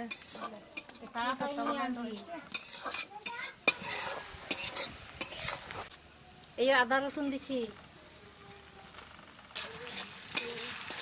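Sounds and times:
metal spatula scraping pan: 0.0s - 5.9s, 9.6s - 11.0s
frying sizzle: 0.0s - 11.0s.

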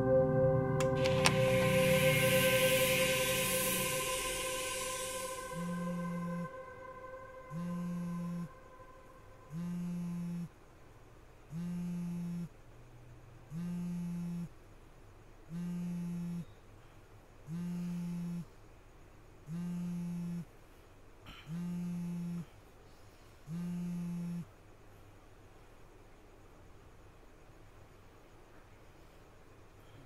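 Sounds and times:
phone vibrating buzz: 7.5s - 8.6s, 9.5s - 10.5s, 11.5s - 12.5s, 13.5s - 14.5s, 15.5s - 16.5s, 17.5s - 18.5s, 19.5s - 20.5s, 21.5s - 22.5s, 23.5s - 24.5s.

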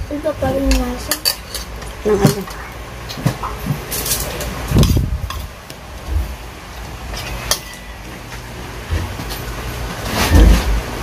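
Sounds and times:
heavy bump: 10.1s - 11.0s.

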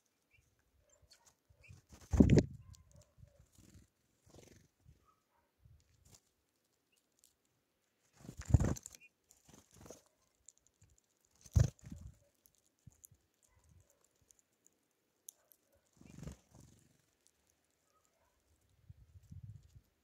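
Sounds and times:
small birds wing flutters: 1.2s - 4.8s, 5.9s - 7.1s, 8.0s - 14.2s, 15.8s - 20.0s.

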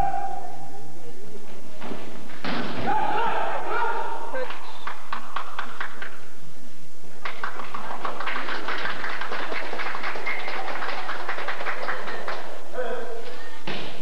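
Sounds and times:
spectators clapping: 4.4s - 6.3s, 7.1s - 12.7s.

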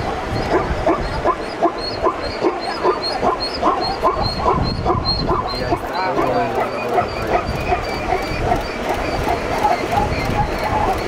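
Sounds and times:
zebras barking yelps: 0.0s - 11.0s.

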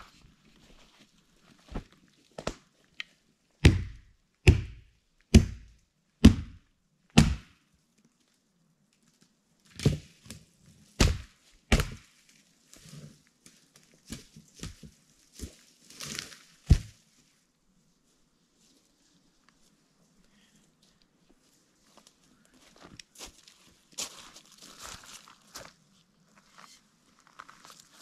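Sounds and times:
hatchet chopping firewood: 3.6s - 6.6s, 7.2s - 7.5s, 11.0s - 12.1s, 16.7s - 16.9s.

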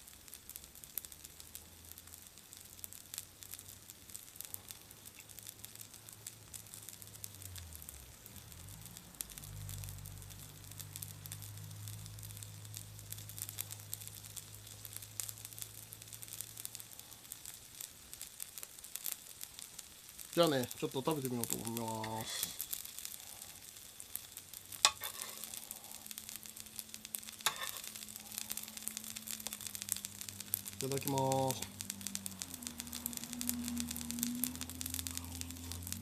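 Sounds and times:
food sizzling in butter: 0.0s - 36.0s
low hum: 25.3s - 36.0s.

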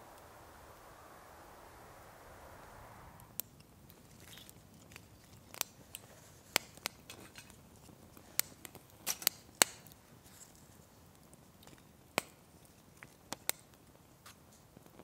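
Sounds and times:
wood fire crackling: 0.0s - 15.0s.

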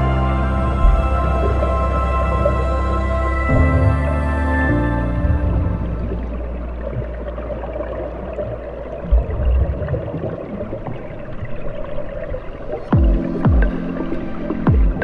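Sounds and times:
downward-sweeping tones: 0.0s - 8.1s
underwater rushing gurgling water: 0.0s - 15.0s
low thumps: 0.6s - 7.7s, 13.0s - 15.0s.

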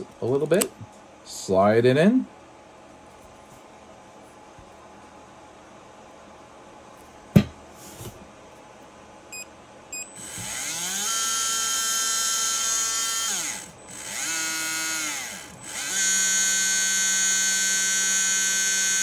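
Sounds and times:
electric motor whine: 10.2s - 19.0s.

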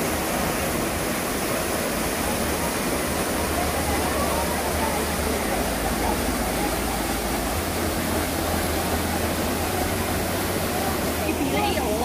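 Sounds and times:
waterfall rushing: 0.0s - 12.0s
faint voices: 0.3s - 12.0s.

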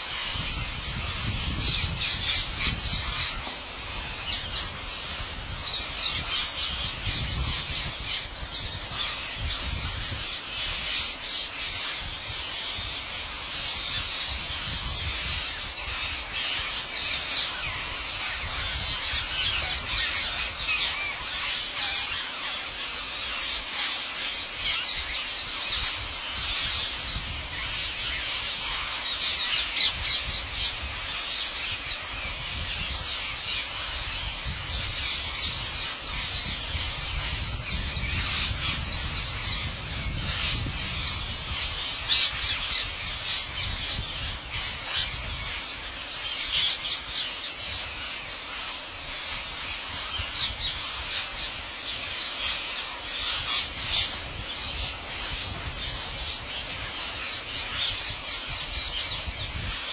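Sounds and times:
parakeets squawking: 32.8s - 51.2s, 52.0s - 59.5s.

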